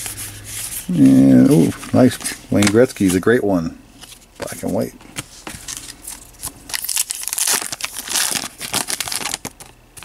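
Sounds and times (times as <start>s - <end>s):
wrapper tearing and crinkling: 5.7s - 10.0s.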